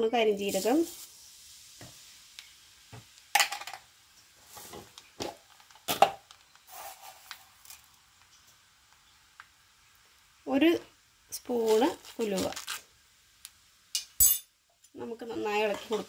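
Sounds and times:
seeds sizzling in hot oil: 0.0s - 16.0s
metal spoon clinking on pan: 14.0s - 14.5s.

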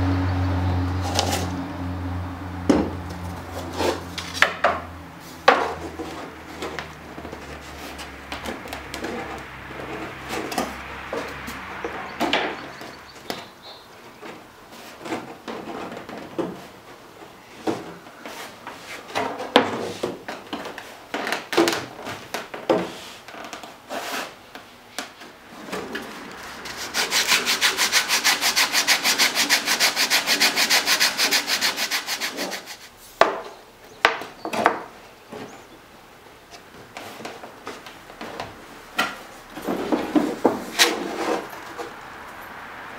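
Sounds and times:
wood strips knocking and rubbing: 2.7s - 24.4s, 25.0s - 35.5s, 36.5s - 42.0s
fast scraping on wood: 25.6s - 33.0s.

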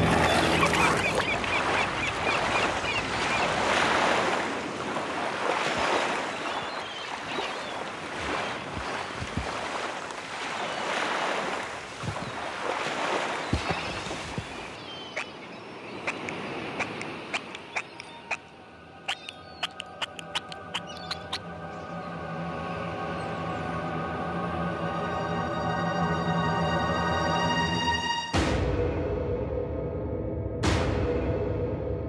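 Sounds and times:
wind thumps on microphone: 8.2s - 9.6s.

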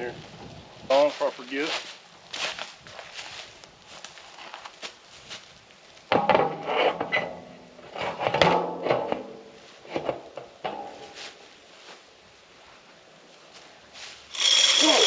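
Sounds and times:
corn kernels clattering: 14.3s - 15.0s
feeder motor whirring: 14.3s - 15.0s.

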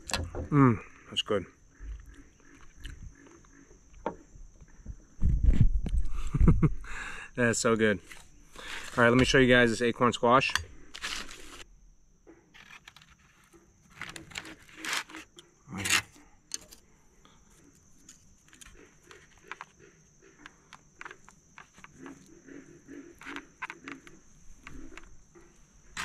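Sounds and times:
chopsticks clicking and tapping: 20.4s - 22.3s.

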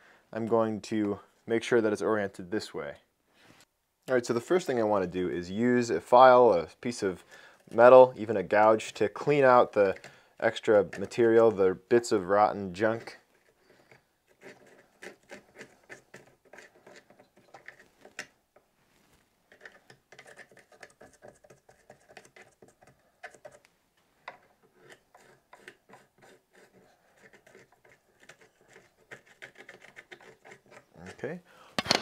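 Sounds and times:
metal tool scraping bark: 14.3s - 17.1s, 24.6s - 31.3s.

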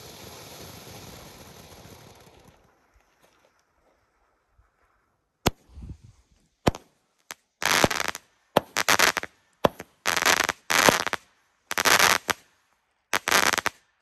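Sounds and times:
firework crackling: 0.0s - 3.0s, 6.6s - 12.5s, 13.1s - 13.9s
firework bangs: 6.6s - 6.9s, 7.6s - 12.4s, 13.2s - 13.8s.

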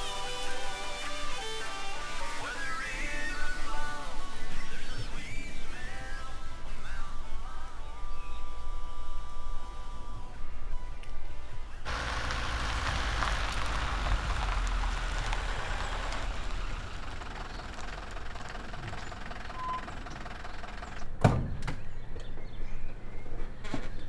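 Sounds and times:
van engine running: 11.9s - 21.2s.

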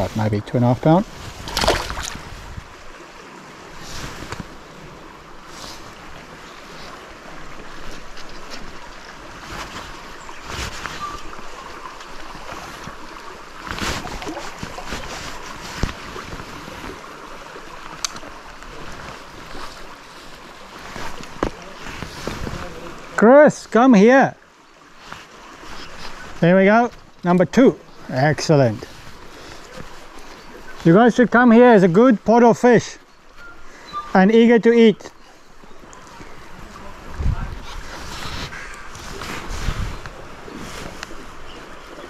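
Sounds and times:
stream water running over stones: 0.0s - 42.0s
water splashes and knocks: 0.5s - 3.0s, 3.7s - 4.8s, 5.8s - 23.2s.

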